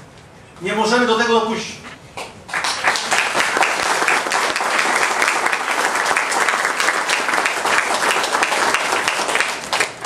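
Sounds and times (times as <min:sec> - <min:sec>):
audience applauding: 0:02.5 - 0:10.0.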